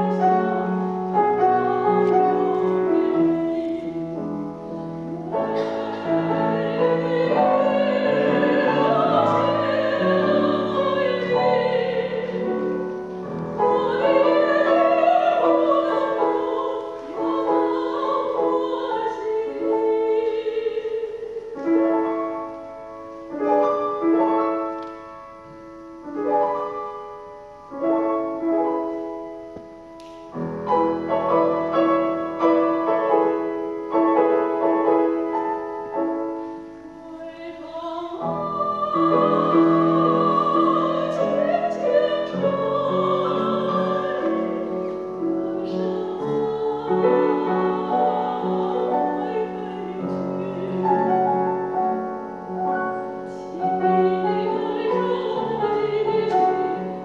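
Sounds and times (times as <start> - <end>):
woman singing operatic style: 0.0 - 23.5, 30.7 - 57.0
grand piano: 0.0 - 57.0.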